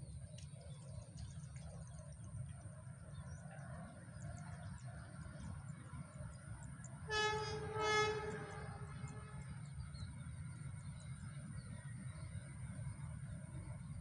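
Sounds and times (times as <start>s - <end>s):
locomotive horn blasts: 7.1s - 9.6s.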